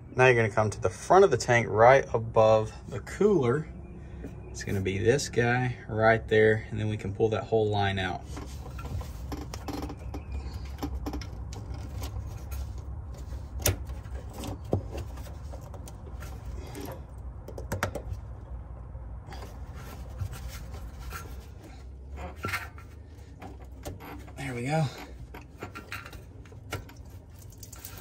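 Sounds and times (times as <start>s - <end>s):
plastic and metal scraping: 8.2s - 18.4s, 19.3s - 28.0s.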